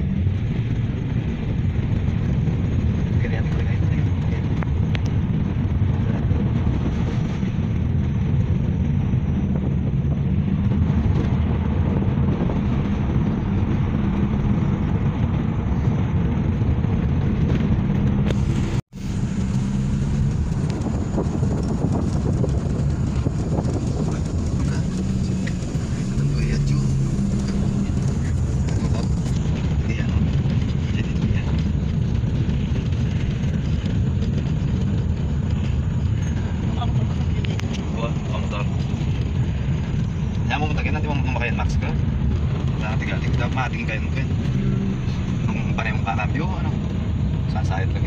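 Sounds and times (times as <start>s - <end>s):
car cabin road and engine rumble: 0.0s - 48.0s.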